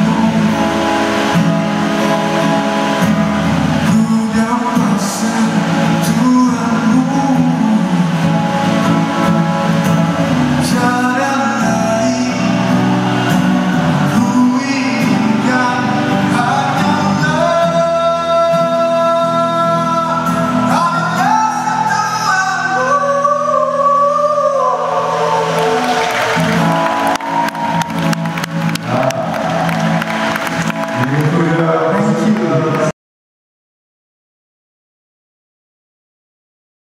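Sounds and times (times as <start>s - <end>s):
man singing: 0.0s - 1.3s, 3.8s - 9.4s, 10.5s - 25.8s
acoustic guitar: 0.0s - 32.9s.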